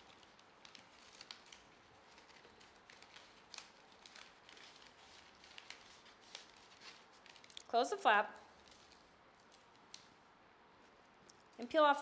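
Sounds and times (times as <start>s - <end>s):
paper and envelope rustling: 0.0s - 11.6s.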